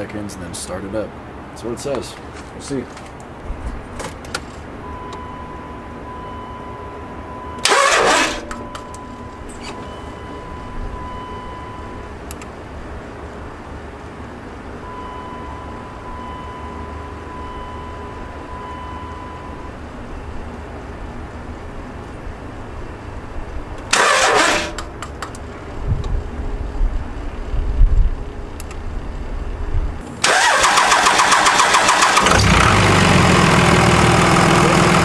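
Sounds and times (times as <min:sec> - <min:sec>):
electric fuel pump whining: 0:07.6 - 0:09.0, 0:23.8 - 0:24.9, 0:30.2 - 0:33.2.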